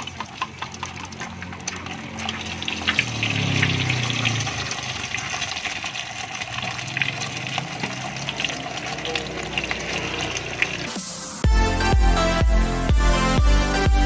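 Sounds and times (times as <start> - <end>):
tofu sizzling in hot oil: 2.3 - 10.9.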